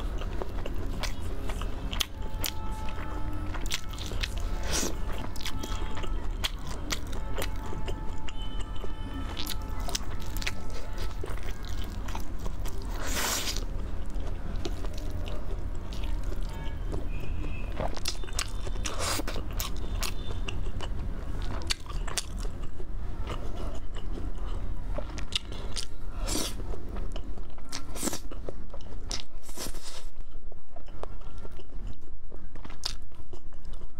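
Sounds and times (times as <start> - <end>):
crunchy bites and chewing: 0.0 - 17.0.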